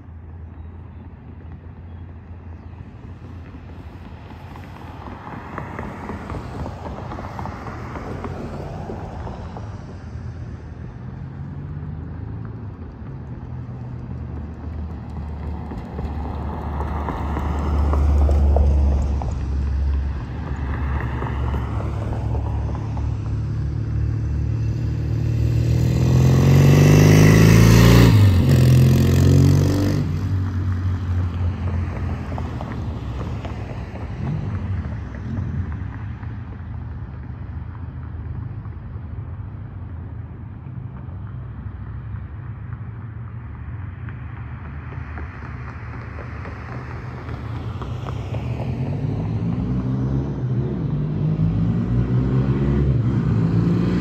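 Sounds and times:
motorcycle engine riding past: 0:23.1 - 0:30.5.

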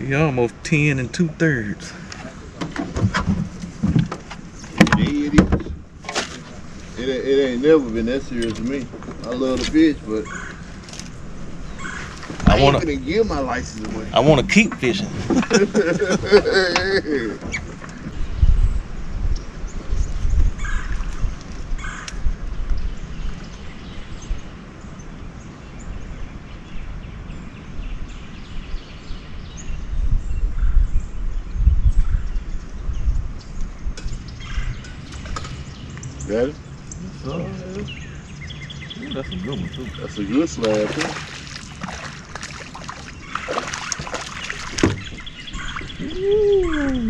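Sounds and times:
wind rumble on microphone: 0:02.1 - 0:47.0
bird chirps: 0:31.6 - 0:47.0
water splashing and dripping: 0:40.4 - 0:47.0.

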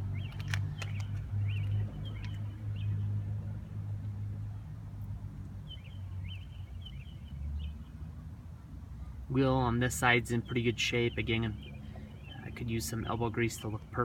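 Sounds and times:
small birds chirping: 0:00.0 - 0:03.2, 0:05.5 - 0:14.0
sharp clicks: 0:00.2 - 0:02.4.

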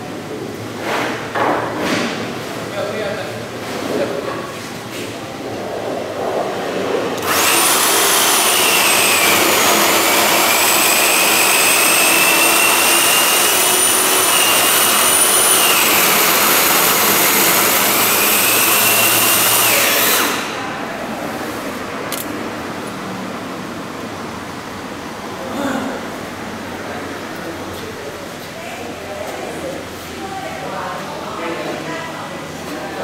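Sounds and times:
power tool motor whining: 0:07.2 - 0:20.6.

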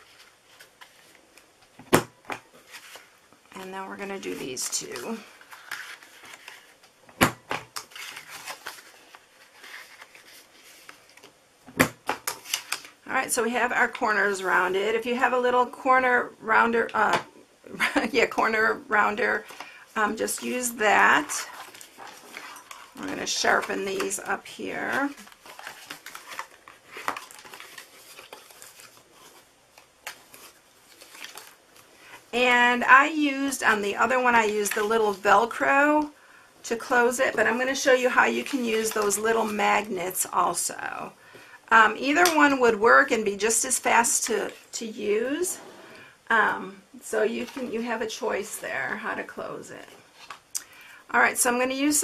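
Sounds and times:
card rustling: 0:04.0 - 0:11.4, 0:19.4 - 0:32.2.

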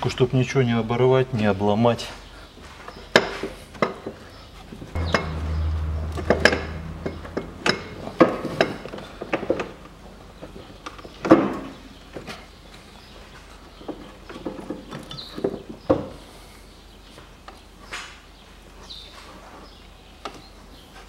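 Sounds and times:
low hum: 0:05.0 - 0:08.2
knocks and metallic clinks: 0:05.0 - 0:09.8.

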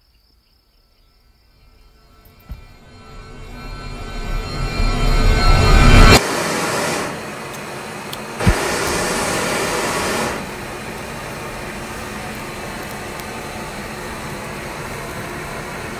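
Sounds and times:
fire igniting thump: 0:02.4 - 0:02.8, 0:08.4 - 0:10.6
flames rushing: 0:06.1 - 0:15.9.

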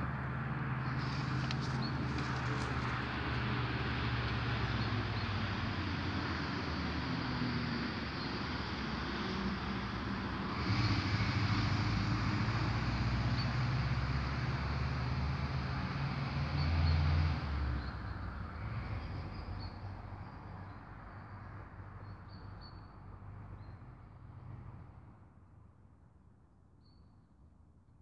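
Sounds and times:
vehicle engine humming: 0:00.0 - 0:19.6.

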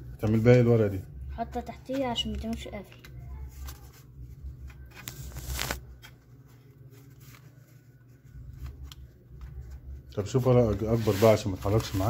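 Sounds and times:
paper rustling and sliding: 0:04.7 - 0:07.9, 0:10.6 - 0:12.0.

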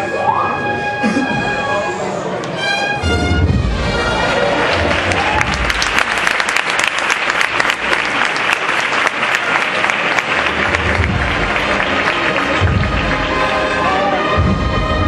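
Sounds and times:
band music: 0:00.0 - 0:06.1, 0:10.2 - 0:15.0
crowd applauding: 0:03.8 - 0:14.5.

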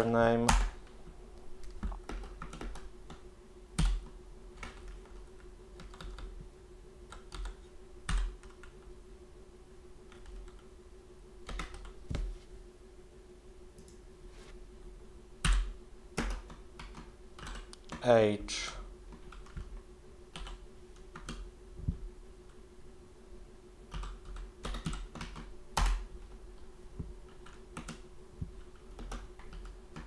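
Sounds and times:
keyboard typing: 0:01.6 - 0:03.2, 0:03.8 - 0:06.3, 0:07.1 - 0:08.9, 0:11.5 - 0:12.0, 0:15.4 - 0:18.0, 0:19.2 - 0:19.7, 0:20.3 - 0:21.4, 0:23.9 - 0:26.1, 0:28.6 - 0:30.0.

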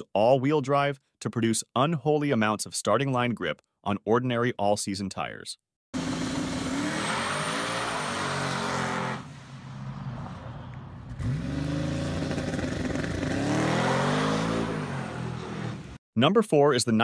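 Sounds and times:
car engine revving and accelerating: 0:06.0 - 0:16.0.

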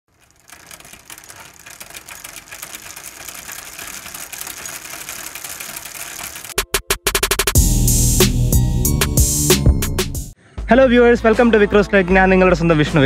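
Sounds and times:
rapid mechanical clicking: 0:00.1 - 0:07.6.

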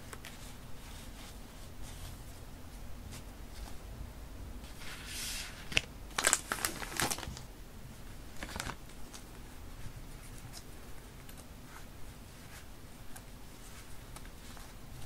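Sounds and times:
paper strips rustling: 0:04.7 - 0:07.5, 0:08.3 - 0:15.0
plastic packet crinkling: 0:05.7 - 0:07.5, 0:08.4 - 0:09.2.

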